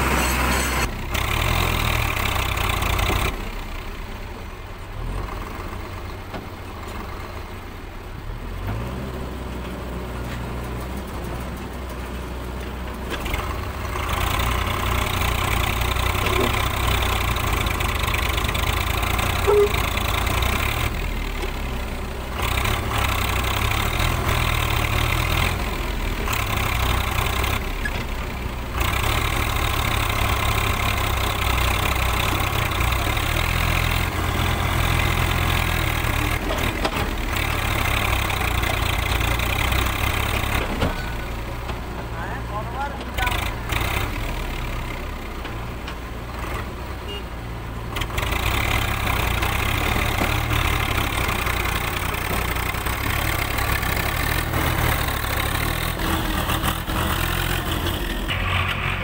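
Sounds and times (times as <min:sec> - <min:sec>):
tractor engine straining: 0:00.0 - 0:59.0.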